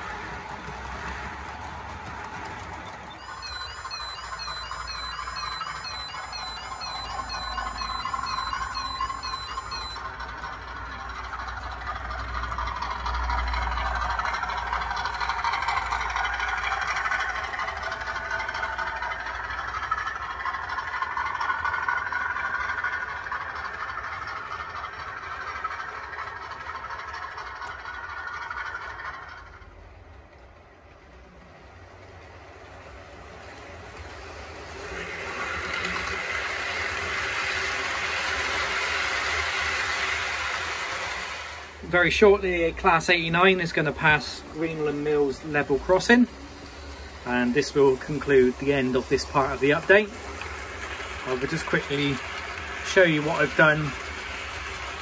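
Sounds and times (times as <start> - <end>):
model train running on track: 0.0 - 55.0.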